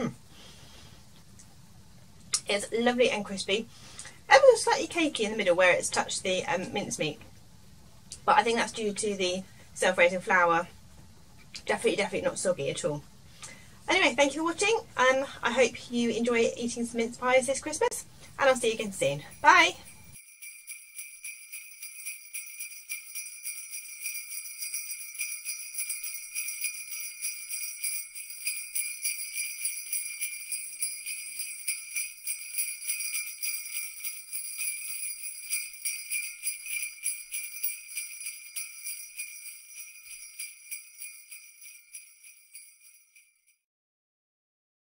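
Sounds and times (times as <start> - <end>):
jingle bells shaking: 17.6 - 43.6.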